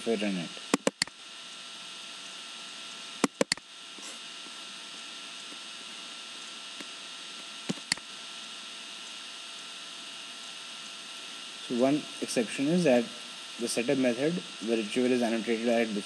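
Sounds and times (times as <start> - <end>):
mains hum: 0.0 - 16.0
steady hiss: 0.0 - 16.0
computer mouse clicking: 0.7 - 1.2, 3.2 - 3.6, 7.7 - 8.0.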